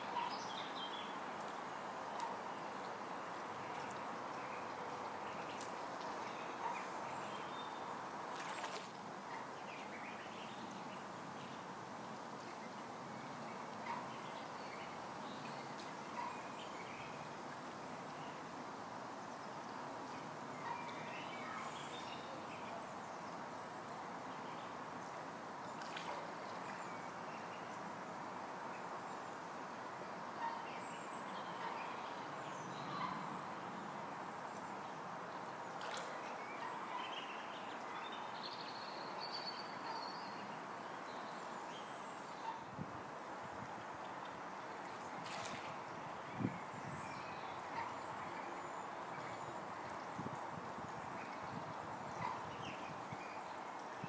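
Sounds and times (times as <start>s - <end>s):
outdoor background hiss: 0.0s - 54.0s.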